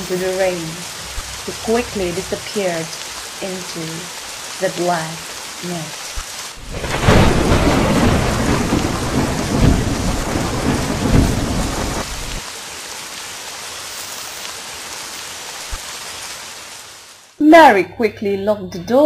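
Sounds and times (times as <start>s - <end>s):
thunder rumble: 0.0s - 2.9s, 6.6s - 12.4s
steady rain: 0.0s - 17.8s.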